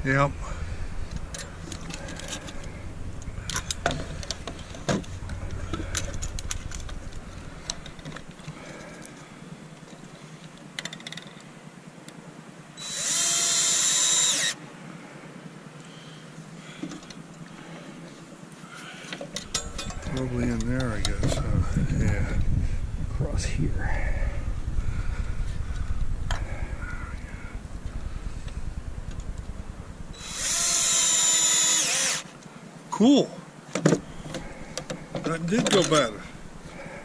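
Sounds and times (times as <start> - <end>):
cordless drill whine: 12.8 - 14.6, 30.1 - 32.3.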